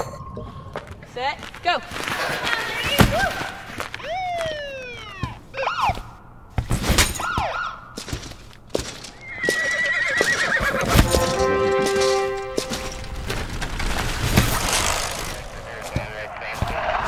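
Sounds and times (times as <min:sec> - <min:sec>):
horse whinnying: 0:09.2 - 0:11.3.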